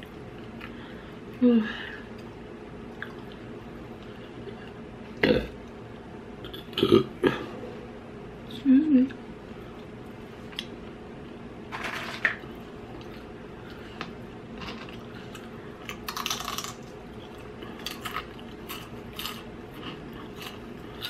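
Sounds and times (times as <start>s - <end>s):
chewing and mouth noises: 2.1s - 4.8s, 14.9s - 21.0s.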